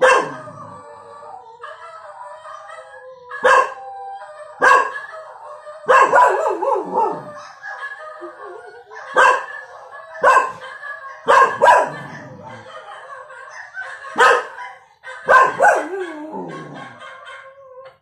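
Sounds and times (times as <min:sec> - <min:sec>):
puppy barking: 0:00.0 - 0:00.8, 0:01.6 - 0:03.8, 0:04.6 - 0:17.9
tv audio: 0:00.0 - 0:18.0.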